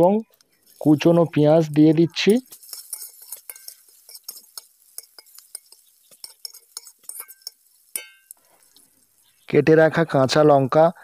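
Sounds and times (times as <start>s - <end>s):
metal spatula scraping a pan: 2.1s - 9.4s.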